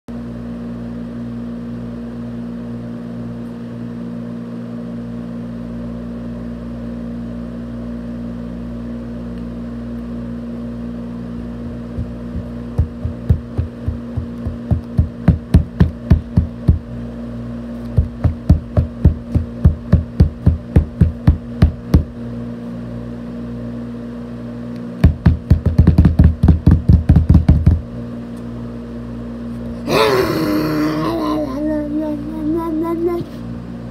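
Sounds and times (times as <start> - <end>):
steady low hum: 0.1 - 33.9
sharp knocking: 11.9 - 16.8.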